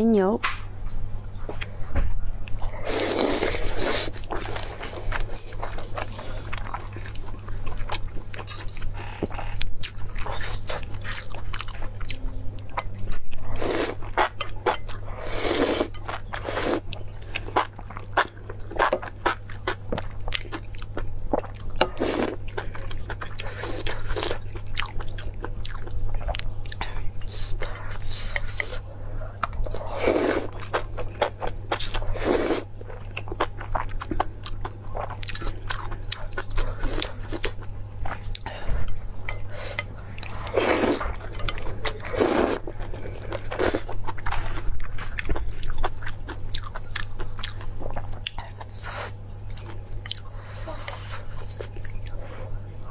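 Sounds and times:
chewing with wet clicks: 0:04.3 - 0:15.1, 0:15.9 - 0:29.8, 0:32.8 - 0:38.5, 0:42.8 - 0:52.9.

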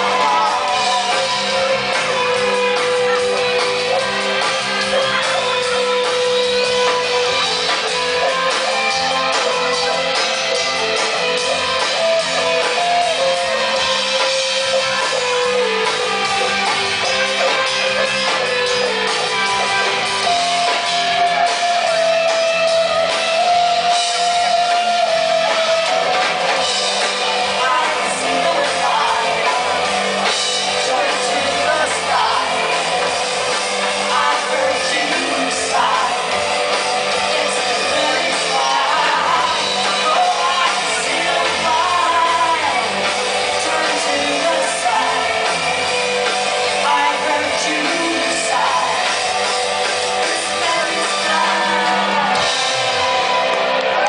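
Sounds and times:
drum kit: 0:00.0 - 0:54.0
electric guitars: 0:00.0 - 0:54.0
woman singing: 0:50.3 - 0:52.4.

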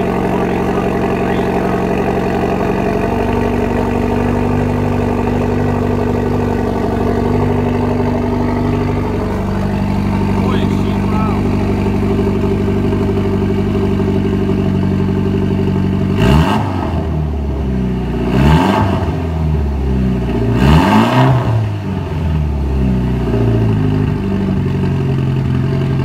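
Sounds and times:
engine revving: 0:00.0 - 0:24.6
car engine idling: 0:00.0 - 0:26.0.

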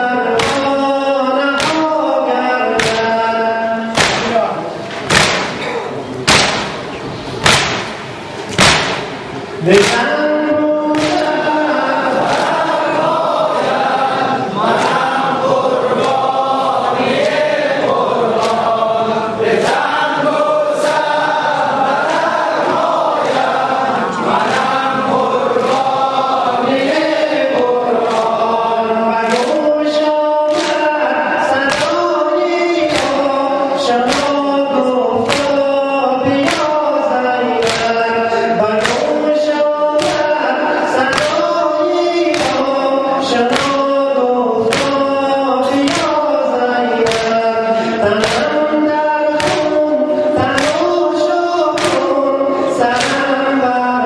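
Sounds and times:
men chanting in unison: 0:00.0 - 0:05.4, 0:09.5 - 0:54.0
chest-beating slaps: 0:00.4 - 0:00.8, 0:01.6 - 0:01.9, 0:02.8 - 0:03.2, 0:03.9 - 0:10.1, 0:10.9 - 0:11.6, 0:29.3 - 0:29.6, 0:30.5 - 0:32.2, 0:32.8 - 0:33.4, 0:34.0 - 0:34.5, 0:35.2 - 0:35.7, 0:36.3 - 0:36.8, 0:37.6 - 0:38.0, 0:38.8 - 0:39.2, 0:40.0 - 0:40.4, 0:41.0 - 0:41.5, 0:42.3 - 0:42.8, 0:43.5 - 0:44.0, 0:44.6 - 0:46.2, 0:47.0 - 0:47.4, 0:48.0 - 0:48.6, 0:49.3 - 0:51.0, 0:51.7 - 0:52.2, 0:52.9 - 0:53.4.

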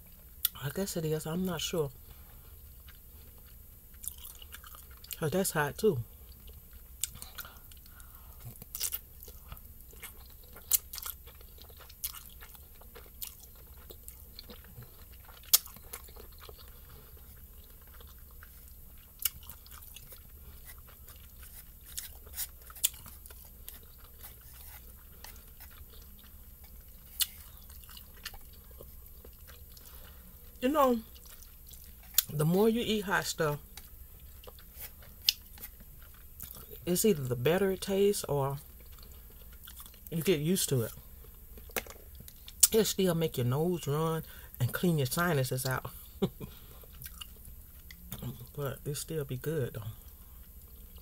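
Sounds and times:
person chewing noodles: 0:02.0 - 0:05.2, 0:06.0 - 0:32.4, 0:33.5 - 0:37.3, 0:38.6 - 0:40.1, 0:40.8 - 0:42.7, 0:45.9 - 0:48.6, 0:49.8 - 0:51.0.

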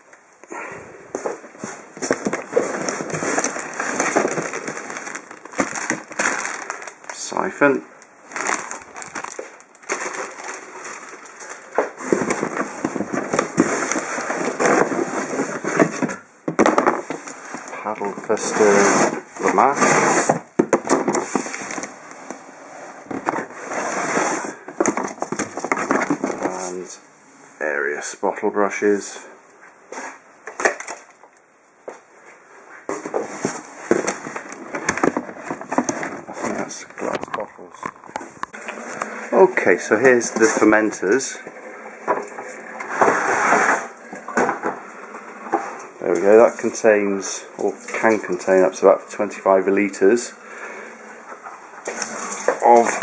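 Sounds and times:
rummaging in cardboard box: 0:01.1 - 0:22.4, 0:23.0 - 0:26.8, 0:32.8 - 0:37.5
plastic packaging crinkling: 0:01.6 - 0:18.8, 0:20.7 - 0:22.4.

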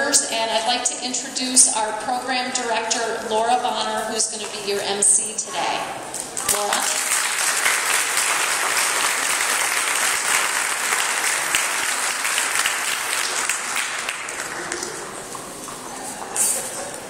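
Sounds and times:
crowd applauding: 0:06.2 - 0:15.9.

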